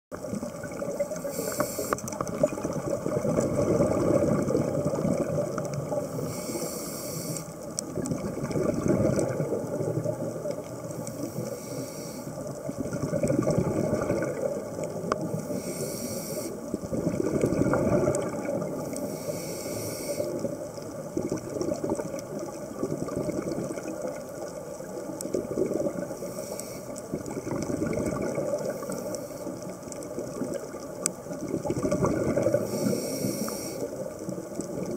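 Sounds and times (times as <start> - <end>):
exhaled air bubbling: 0.1 - 34.9
scuba regulator hissing inhalation: 1.1 - 2.2, 6.0 - 7.6, 11.0 - 12.4, 15.3 - 16.7, 18.8 - 20.6, 26.2 - 27.1, 32.4 - 34.0.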